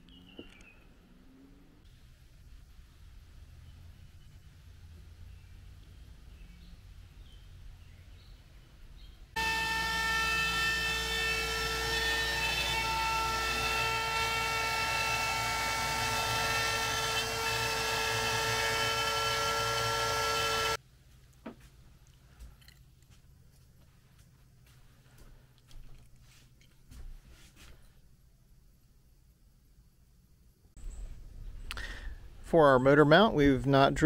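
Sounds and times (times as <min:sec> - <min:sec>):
router spindle cutting plywood: 0:09.4 - 0:20.8.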